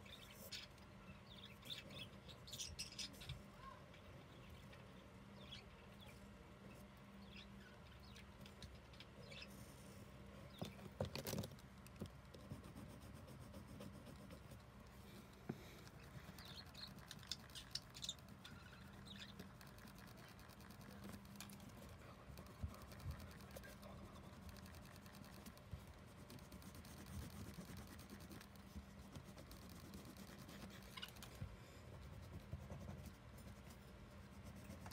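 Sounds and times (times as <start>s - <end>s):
crayon scratching on paper: 12.4s - 14.6s, 15.2s - 34.9s.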